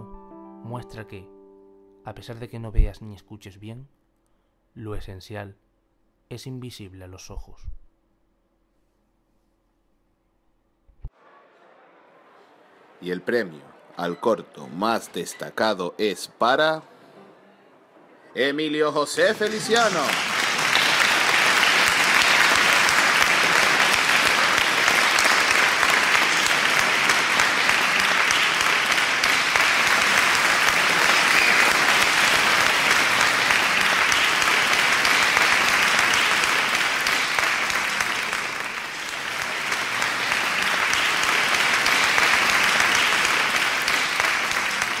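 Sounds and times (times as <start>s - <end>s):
audience applauding: 19.1s - 45.0s.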